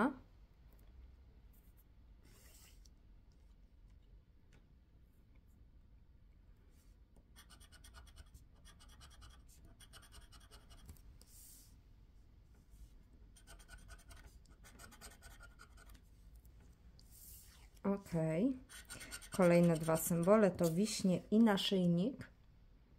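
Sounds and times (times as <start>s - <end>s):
scraping lottery ticket: 18.7s - 20.8s.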